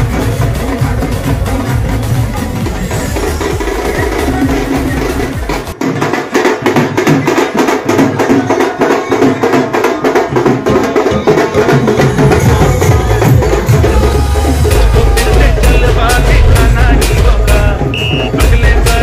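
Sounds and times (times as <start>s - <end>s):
deep bass drum layer: 0.0s - 6.1s, 10.3s - 19.0s
drum beaten in fast rhythm: 0.0s - 19.0s.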